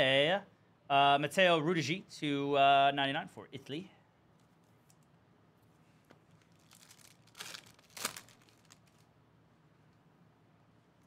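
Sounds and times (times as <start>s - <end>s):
foil wrapper crinkling: 6.3s - 9.1s
foil wrapper ripping: 6.4s - 9.1s.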